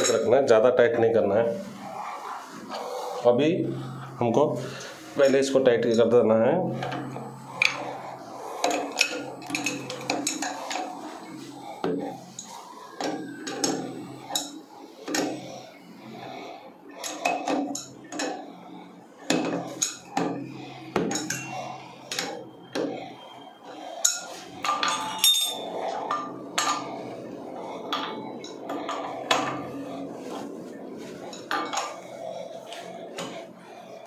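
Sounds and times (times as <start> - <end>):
spanner clinking on metal fittings: 24.8 - 25.7.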